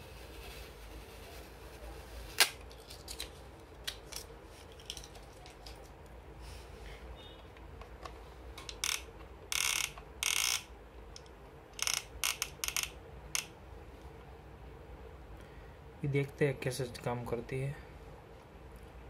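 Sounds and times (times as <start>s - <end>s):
scraping rustling handling noises: 0.0s - 6.8s.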